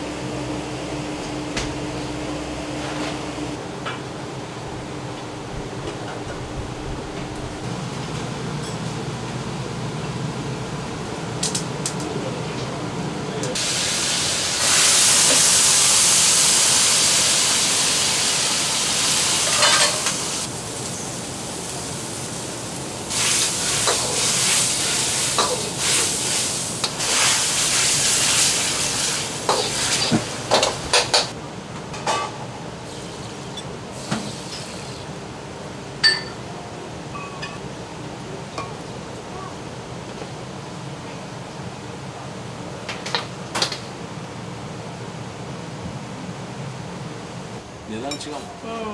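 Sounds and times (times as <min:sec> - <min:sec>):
wok sizzling: 0:13.6 - 0:31.4.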